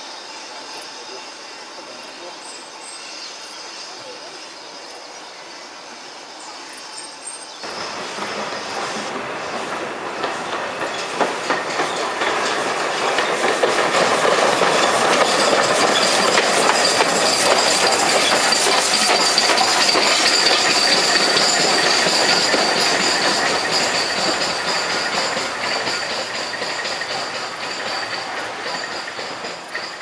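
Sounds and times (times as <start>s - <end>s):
train wheels clattering: 7.6s - 30.0s.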